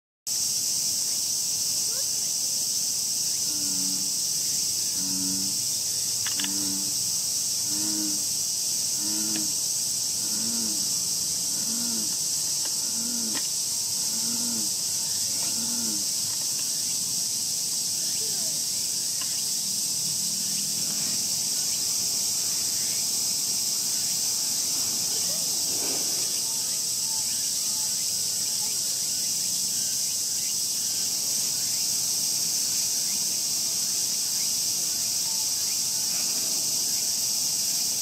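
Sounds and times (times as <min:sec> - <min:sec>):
insects buzzing: 0:00.3 - 0:38.0.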